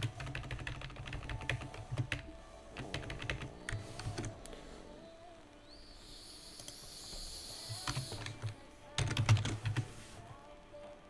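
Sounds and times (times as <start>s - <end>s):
typing on computer keyboard: 0.0s - 4.3s, 7.7s - 9.9s.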